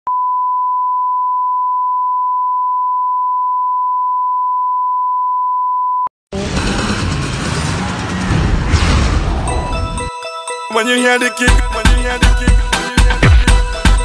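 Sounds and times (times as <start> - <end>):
loud music: 6.4 - 14.0.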